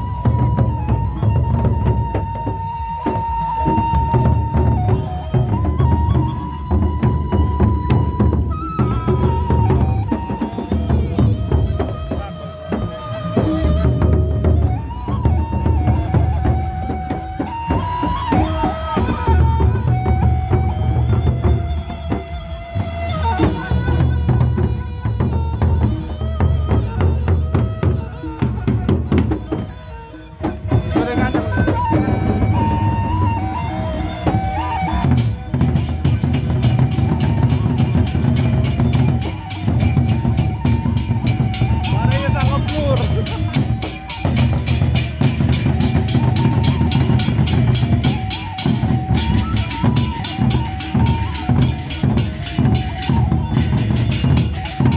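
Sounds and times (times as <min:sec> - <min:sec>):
held melody line: 0:00.0 - 0:54.9
barrel drums beaten rapidly: 0:34.2 - 0:54.9.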